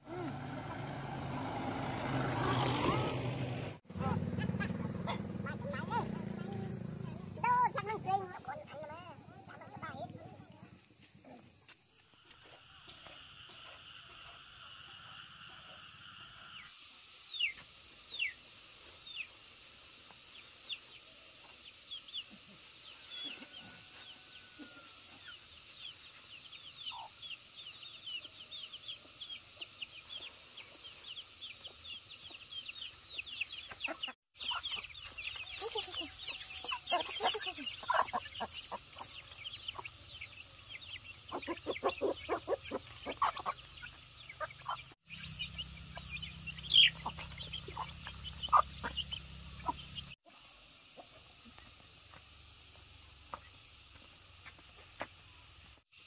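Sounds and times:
chickens clucking: 0:29.5 - 0:51.8.

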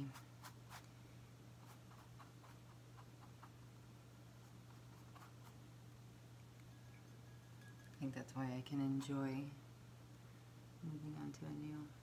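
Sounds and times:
paintbrush strokes on canvas: 0:00.0 - 0:00.9, 0:01.6 - 0:03.6, 0:04.4 - 0:05.6
low steady hum: 0:00.0 - 0:12.0.

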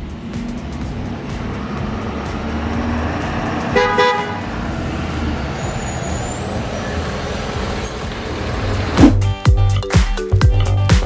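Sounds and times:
truck engine running: 0:00.0 - 0:09.3
vehicle horn toot: 0:03.7 - 0:04.5.

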